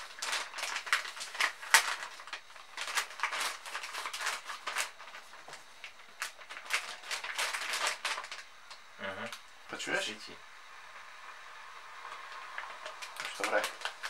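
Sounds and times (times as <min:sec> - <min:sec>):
crinkling plastic pouch: 0:00.0 - 0:08.8, 0:12.1 - 0:14.0.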